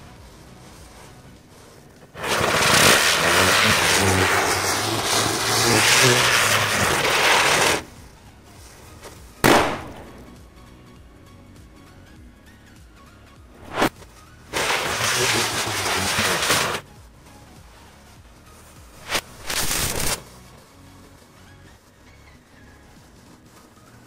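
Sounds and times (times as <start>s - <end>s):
firework hissing sparks: 0.0s - 10.6s, 13.6s - 16.8s, 17.6s - 20.7s
firecracker bang: 2.1s - 8.0s, 9.4s - 10.5s, 14.6s - 16.8s, 19.0s - 20.2s.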